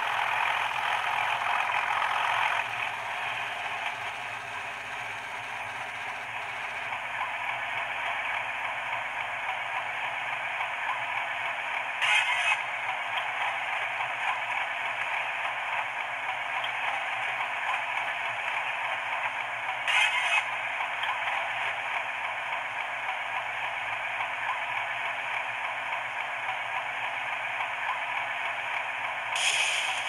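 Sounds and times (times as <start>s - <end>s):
diesel engine through small speaker: 0.0s - 30.0s
short sharp hiss: 29.4s - 30.0s.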